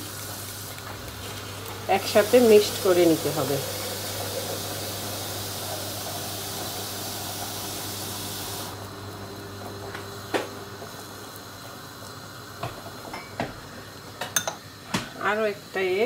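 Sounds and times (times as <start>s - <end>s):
steady hiss: 0.0s - 8.8s.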